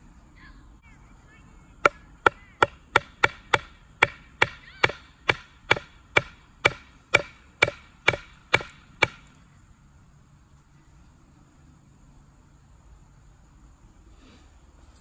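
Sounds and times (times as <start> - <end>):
axe head knocking on wood: 1.9 - 9.3.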